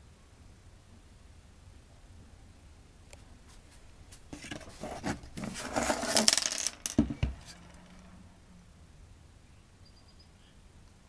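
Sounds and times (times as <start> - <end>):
hard objects clattering and scraping: 4.2 - 8.2.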